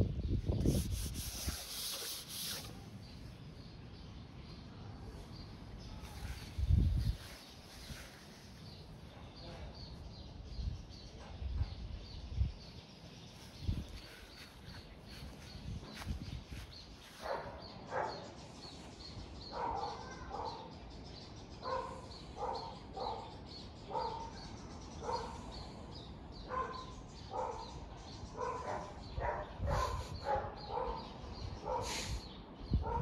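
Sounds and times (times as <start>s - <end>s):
dog barking: 17.2s - 18.3s, 19.5s - 20.7s, 21.6s - 24.3s, 25.0s - 25.5s, 26.5s - 27.8s, 28.4s - 32.0s, 32.8s - 33.0s.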